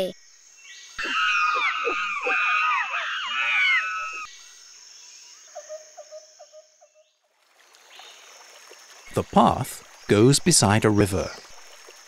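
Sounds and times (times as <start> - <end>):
jungle ambience hiss: 0.0 - 12.0
low repeated calls: 0.7 - 4.4
monkeys chattering: 1.0 - 4.3.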